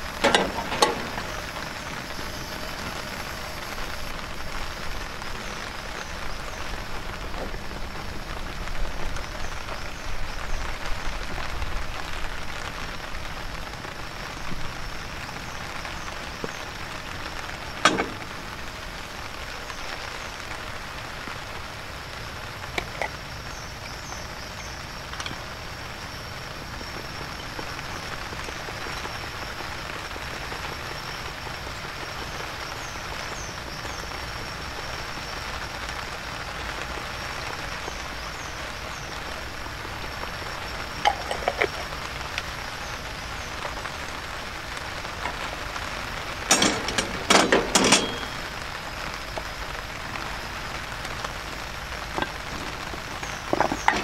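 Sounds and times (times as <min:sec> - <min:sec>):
heavy rain hissing: 0:00.0 - 0:54.0
metal tongs and plate clattering: 0:46.5 - 0:48.4.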